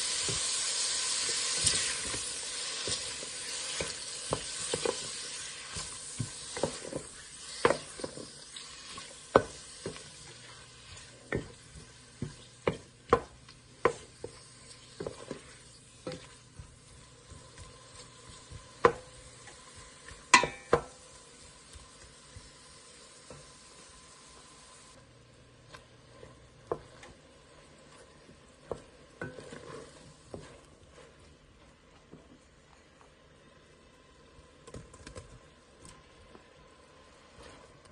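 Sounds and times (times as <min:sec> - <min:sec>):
food sizzling: 0:00.0 - 0:37.9
spoon knocking and scraping a pot: 0:02.8 - 0:08.3, 0:08.9 - 0:21.1, 0:27.9 - 0:31.1.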